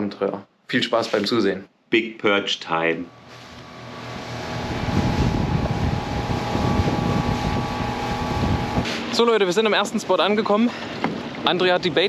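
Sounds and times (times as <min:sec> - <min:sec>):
motorboat motor hum: 0:02.9 - 0:12.0
wind and water rushing: 0:03.2 - 0:12.0.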